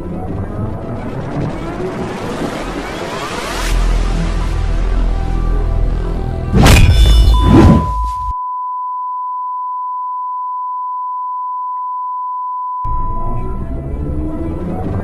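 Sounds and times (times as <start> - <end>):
steady electronic beep: 6.7 - 13.4.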